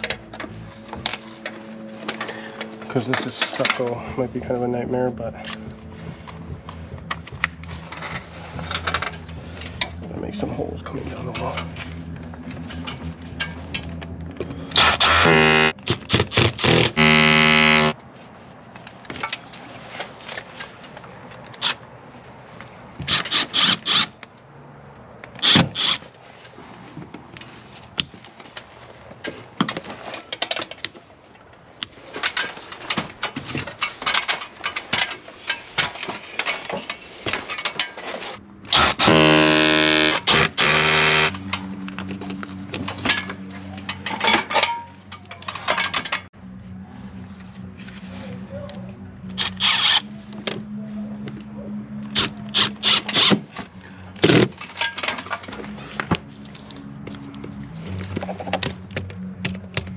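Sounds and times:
cordless drill drilling into wall: 16.4 - 18.0, 38.7 - 41.3
tools and hardware clicking: 39.9 - 46.3, 52.1 - 53.6.

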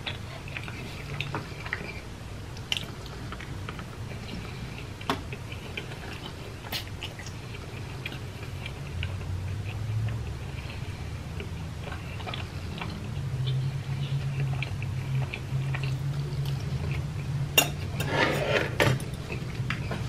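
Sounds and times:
close chewing: 0.0 - 17.4
low steady hum: 0.0 - 20.0.

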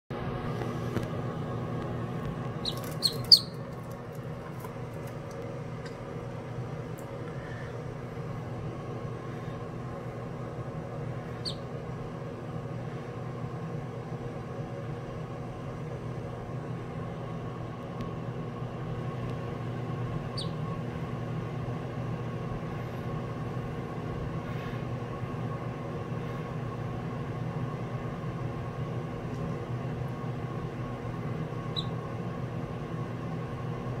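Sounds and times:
low droning hum: 0.2 - 34.0
duckling peeping: 2.6 - 3.7, 11.3 - 11.7, 20.3 - 20.6, 31.7 - 32.0.

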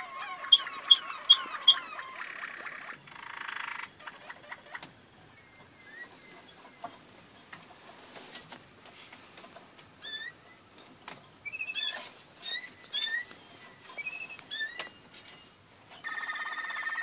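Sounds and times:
canaries singing: 0.0 - 7.8, 10.0 - 17.0.

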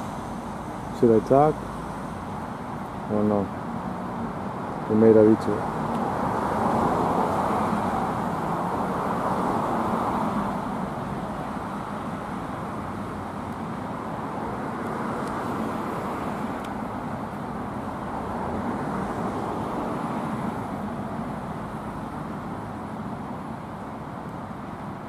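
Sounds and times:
cars passing: 0.0 - 25.0.

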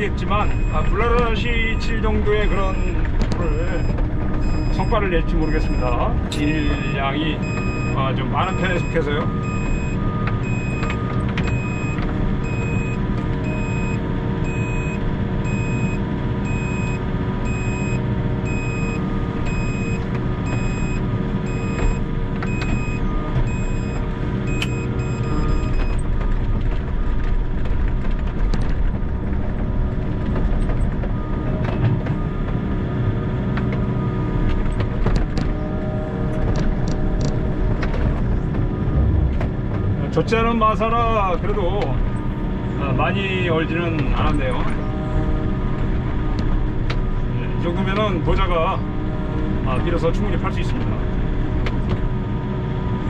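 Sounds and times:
excavator diesel engine and hydraulics: 0.0 - 53.0
electronic warning beep: 0.1 - 26.1.

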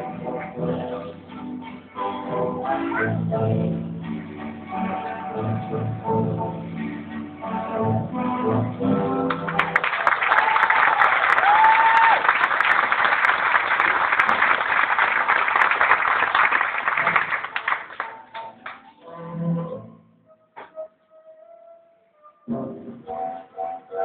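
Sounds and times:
music backing track: 0.0 - 9.9, 17.2 - 24.0
audience applauding: 9.3 - 18.8
whistle: 20.2 - 22.5.

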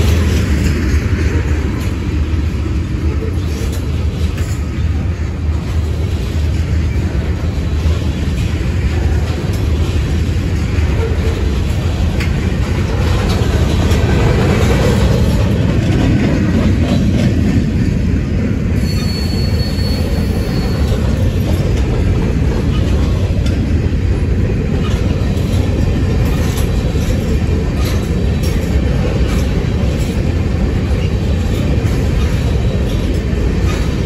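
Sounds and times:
freight train rumbling past: 0.0 - 34.0
wheels clicking on rail: 0.0 - 34.0
high wheel squeal: 18.8 - 21.2.

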